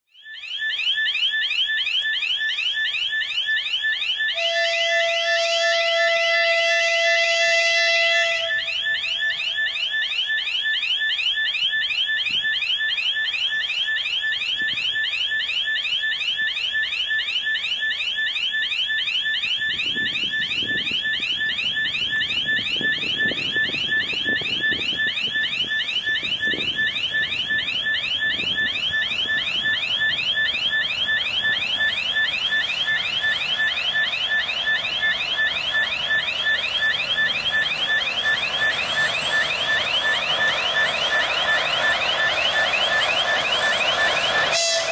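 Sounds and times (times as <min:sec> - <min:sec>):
railway warning signal chirps: 0:00.1 - 0:44.9
diesel locomotive rumble: 0:19.8 - 0:44.9.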